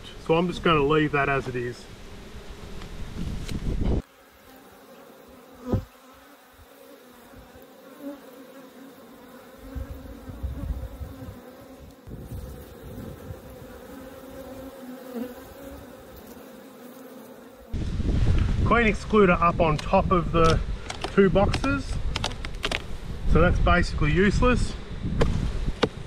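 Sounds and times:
bees buzzing: 0.0s - 17.9s.

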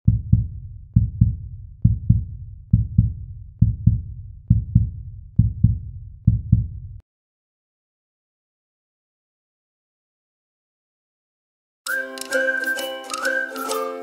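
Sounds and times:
heartbeat thumps: 0.0s - 7.0s.

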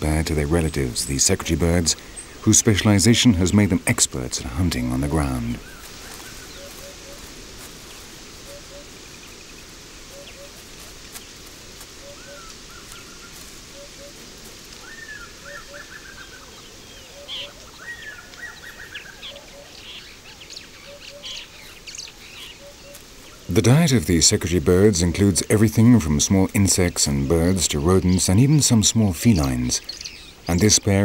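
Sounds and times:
steady outdoor hiss: 0.0s - 31.0s
higher bird rising calls: 5.4s - 23.5s.

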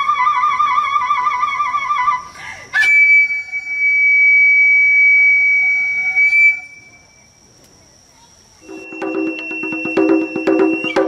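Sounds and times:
transverse flute playing: 2.8s - 7.2s, 8.6s - 11.0s.

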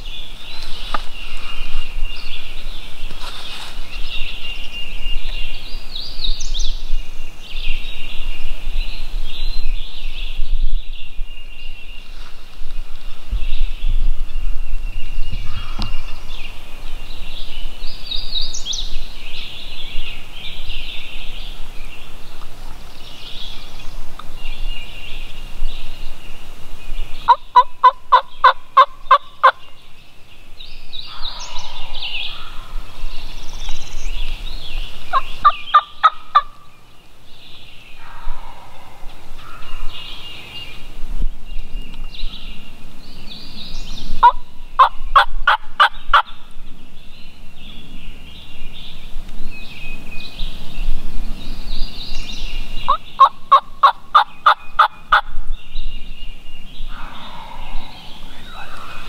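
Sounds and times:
songbirds chirping: 0.0s - 59.0s
turkey gobbling: 27.3s - 29.6s, 35.1s - 36.6s, 44.2s - 46.4s, 52.9s - 55.3s.

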